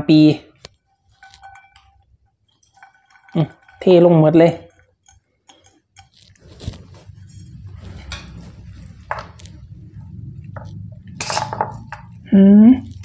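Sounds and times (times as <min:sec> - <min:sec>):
steady low hum: 0:04.5 - 0:13.0.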